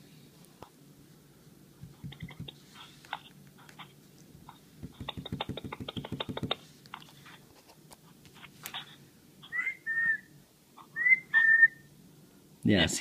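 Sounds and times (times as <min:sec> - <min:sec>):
sharp taps: 0:04.8 - 0:06.6
rising whistle: 0:11.0 - 0:11.9.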